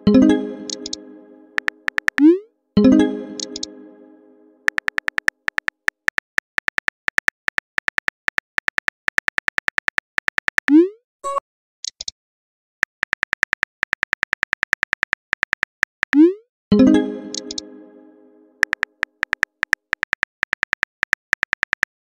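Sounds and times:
phone keyboard typing clicks: 0.7s - 1.0s, 1.6s - 2.3s, 3.4s - 3.7s, 4.7s - 10.7s, 17.3s - 17.6s, 18.6s - 22.0s.

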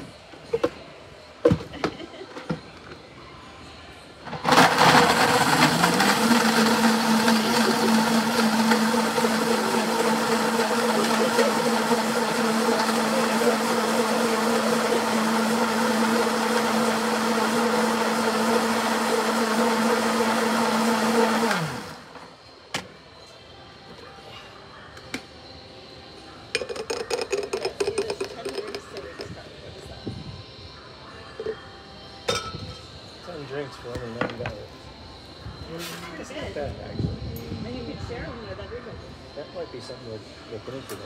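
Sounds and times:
blender motor running: 4.4s - 22.2s.

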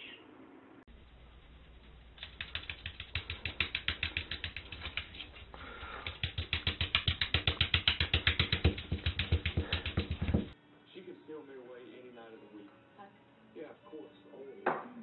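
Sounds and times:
dog feet tapping on tile: 0.9s - 10.6s
dog being patted: 1.4s - 10.6s.

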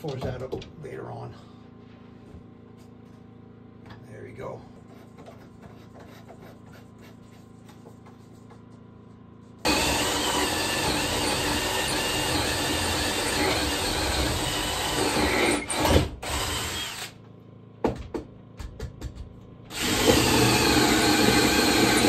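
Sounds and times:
power tool working wood: 9.6s - 17.1s, 19.7s - 22.0s.

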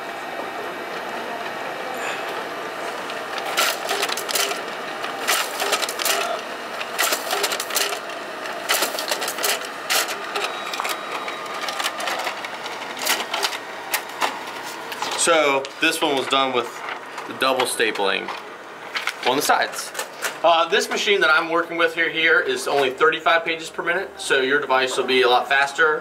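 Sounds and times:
copier mechanical whir: 0.0s - 26.0s
stapler sharp clacks: 3.5s - 4.6s, 5.2s - 8.0s, 8.6s - 11.0s.

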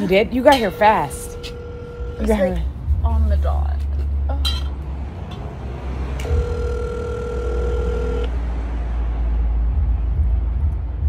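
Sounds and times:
steady low rumble: 0.0s - 11.0s
telephone ringback tone: 0.6s - 2.6s, 6.2s - 8.3s.

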